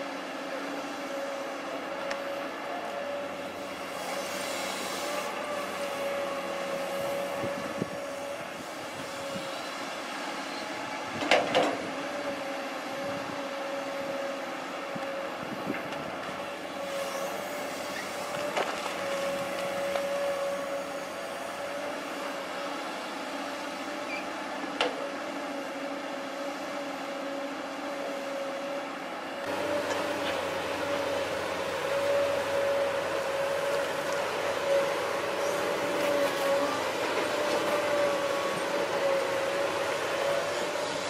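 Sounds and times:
excavator running with whine: 0:00.0 - 0:41.0.

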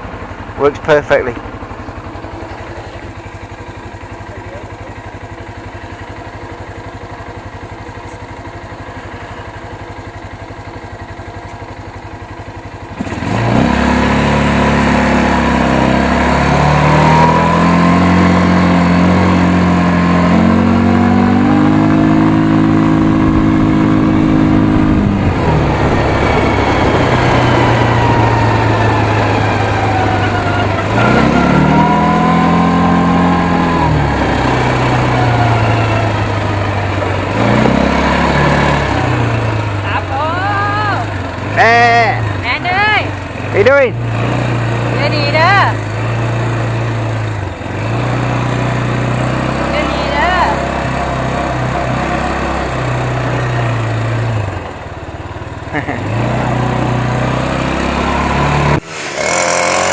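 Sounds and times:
quad bike engine: 0:00.0 - 0:59.9.

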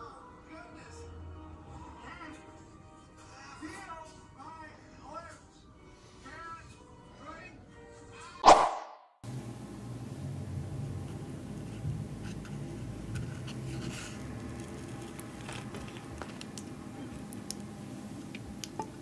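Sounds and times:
low steady hum: 0:09.2 - 0:19.0
crispy taco shell crackling: 0:12.6 - 0:19.0.

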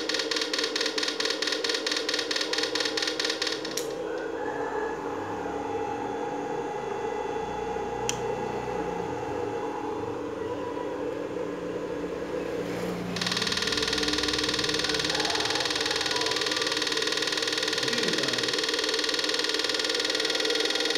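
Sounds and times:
inverter buzzing with rapid pulsing: 0:00.0 - 0:20.9
steady hum: 0:00.0 - 0:20.9
switch click: 0:08.0 - 0:08.3.

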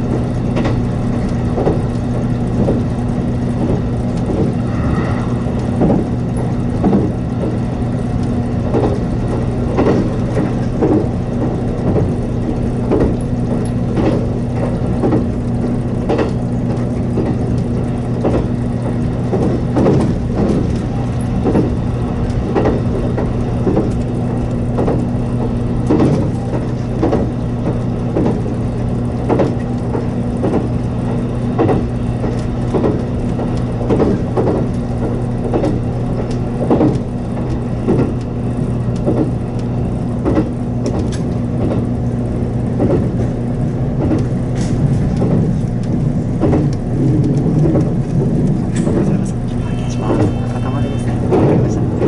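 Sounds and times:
train running rumble and hum: 0:00.0 - 0:52.0
wheels clacking over rail joints: 0:00.0 - 0:52.0.

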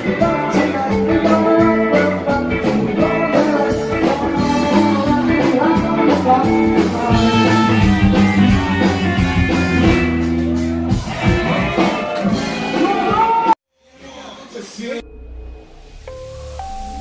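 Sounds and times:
electric guitar: 0:00.0 - 0:13.5
drum kit: 0:00.0 - 0:13.6
live band playing: 0:00.0 - 0:13.6.

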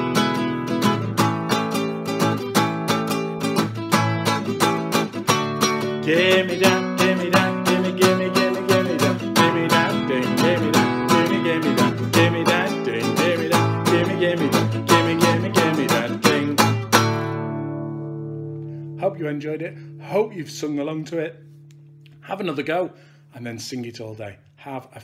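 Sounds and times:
acoustic guitar strumming: 0:00.0 - 0:23.2
man singing: 0:05.7 - 0:17.2.

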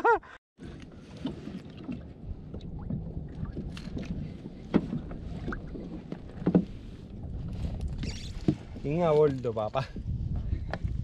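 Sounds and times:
wind: 0:00.0 - 0:11.0
water lapping: 0:00.6 - 0:07.2.

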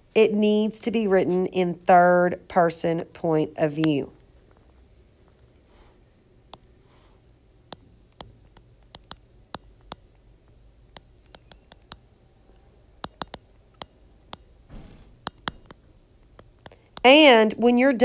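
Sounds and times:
stylus tapping on glass screen: 0:07.7 - 0:10.2, 0:10.9 - 0:12.1, 0:13.0 - 0:17.1.

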